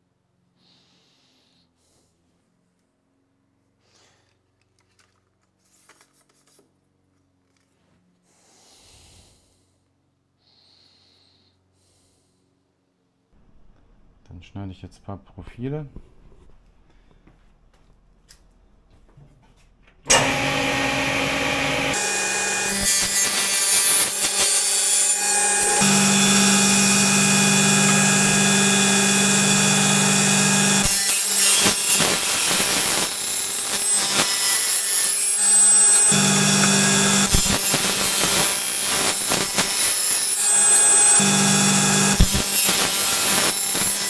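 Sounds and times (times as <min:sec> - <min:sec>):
table saw cutting metal: 0:20.1 - 0:44.0.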